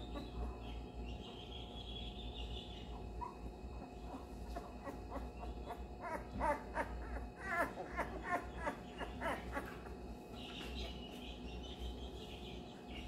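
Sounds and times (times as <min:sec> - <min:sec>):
puppy whining: 0:00.0 - 0:00.8, 0:03.0 - 0:11.0.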